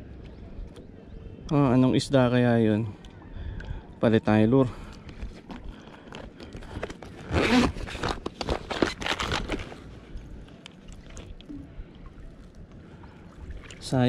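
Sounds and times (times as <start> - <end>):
fishing tackle clicking and rustling: 4.8 - 11.5.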